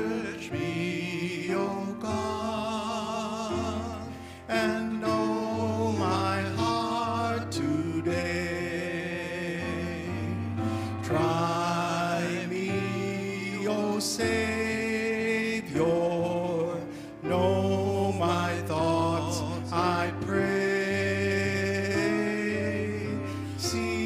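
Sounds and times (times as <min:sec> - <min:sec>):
men singing a hymn: 0:00.0 - 0:24.0
piano playing sustained chords: 0:00.0 - 0:24.0.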